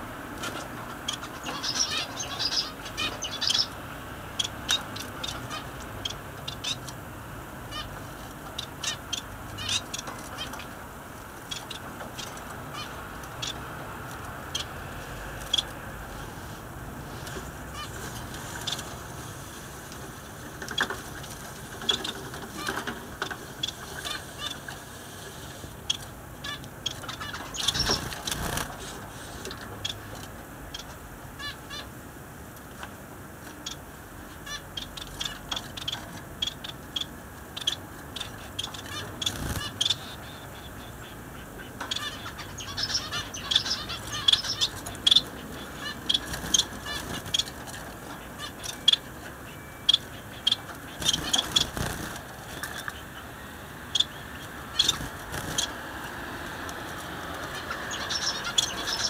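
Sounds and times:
finches chirping: 0.5 - 7.0, 7.7 - 10.8, 11.4 - 13.7, 15.4 - 15.8, 21.7 - 24.8, 25.6 - 30.1, 33.6 - 56.1, 57.4 - 59.0.

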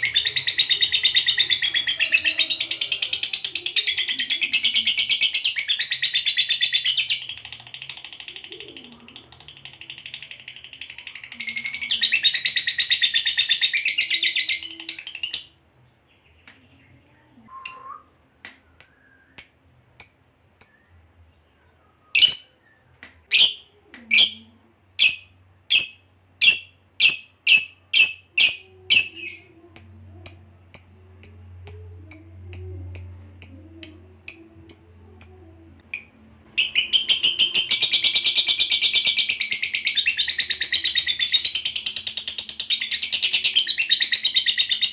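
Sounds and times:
lovebird chattering trill: 25.0 - 44.8.

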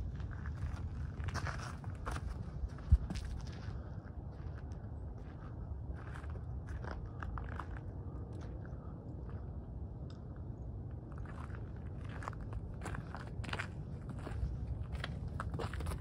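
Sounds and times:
steady low rumble: 0.0 - 16.0
footsteps crunching on gravel: 0.2 - 7.9, 11.2 - 16.0.

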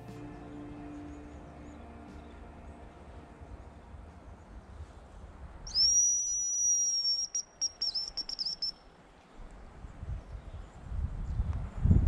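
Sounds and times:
high decoy whistle: 5.7 - 8.8.

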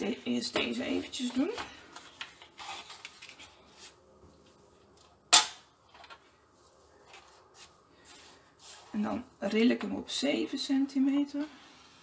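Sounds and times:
paper rustling: 1.2 - 4.6.

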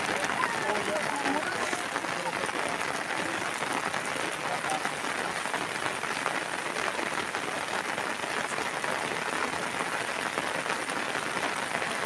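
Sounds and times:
heavy rain on plastic and plants: 0.0 - 12.0.

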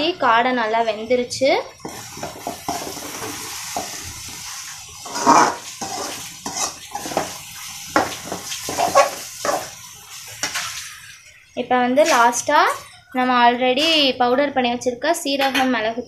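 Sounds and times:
steel spoon scraping metal pan: 1.8 - 4.1, 5.0 - 11.1.

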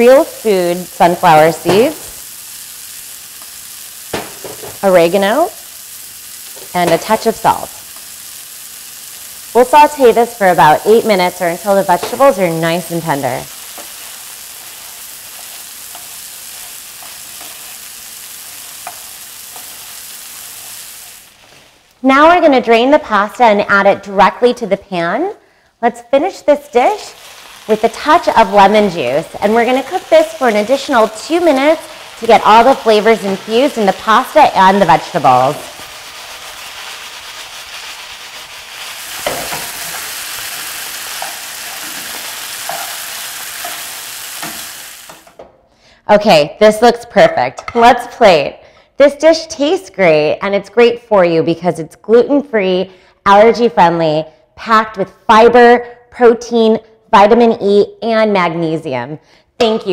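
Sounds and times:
vegetables sizzling in oil: 0.0 - 23.4, 26.0 - 45.4
wooden spoon knocking on pan: 4.1 - 4.8.

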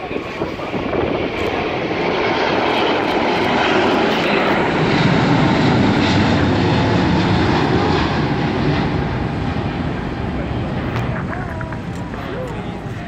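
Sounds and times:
jet airliner taking off: 0.0 - 13.0.

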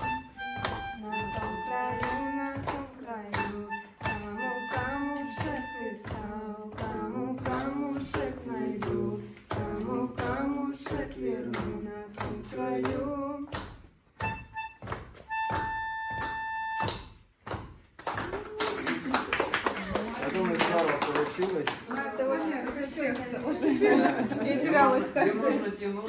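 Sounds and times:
woman singing: 0.0 - 13.7
steady beat of knocks: 0.0 - 18.0.

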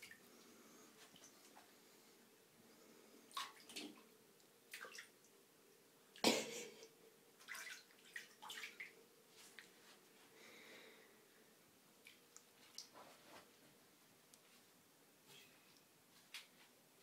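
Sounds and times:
kittens splashing in water: 7.4 - 8.9.

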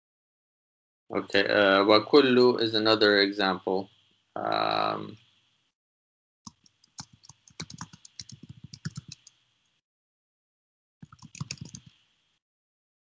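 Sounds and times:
computer keyboard typing: 6.5 - 9.3, 11.0 - 11.9.

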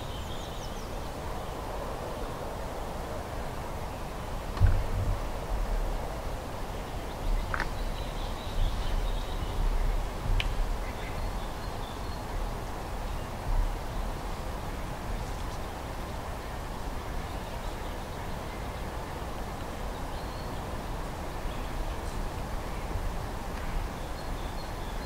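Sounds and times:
low uneven rumble: 4.3 - 16.4.

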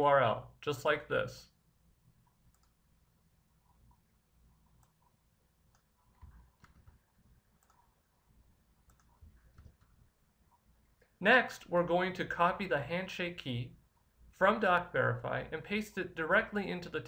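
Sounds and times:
computer mouse clicks: 2.2 - 2.8, 4.7 - 7.0, 7.6 - 8.0, 8.8 - 10.0.

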